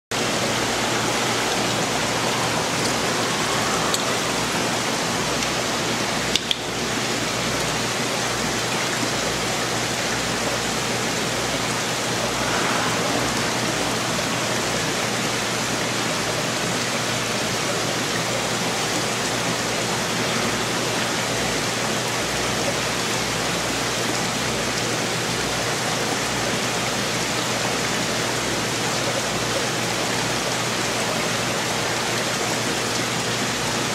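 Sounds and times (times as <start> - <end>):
aquarium water rushing: 0.1 - 33.9
low hum: 0.2 - 6.2, 11.0 - 16.4.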